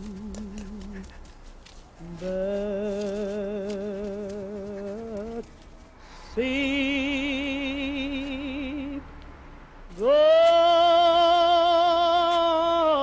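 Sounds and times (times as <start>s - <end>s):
person singing long notes: 2.0s - 5.5s, 6.3s - 9.1s, 9.9s - 13.0s.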